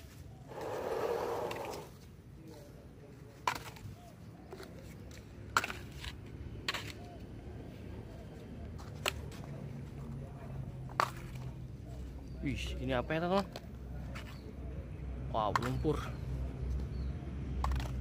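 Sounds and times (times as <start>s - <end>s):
scrape on sandy ground: 0.0s - 4.0s.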